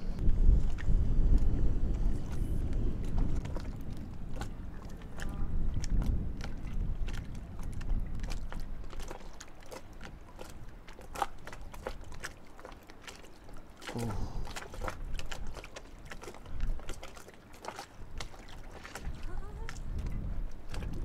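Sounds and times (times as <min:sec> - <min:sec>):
water lapping against a boat hull: 0:00.0 - 0:21.0.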